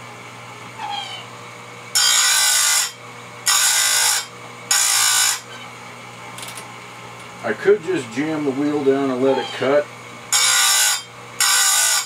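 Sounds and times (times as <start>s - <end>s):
motor humming faintly: 0.0s - 12.0s
grinder wheel grinding metal: 1.9s - 5.6s, 8.7s - 12.0s.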